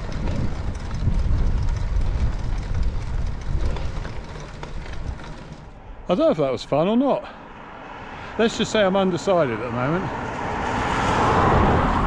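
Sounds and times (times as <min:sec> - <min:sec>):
wind rumbling on microphone: 0:00.0 - 0:05.9
bicycle tyres humming on road: 0:00.0 - 0:12.0.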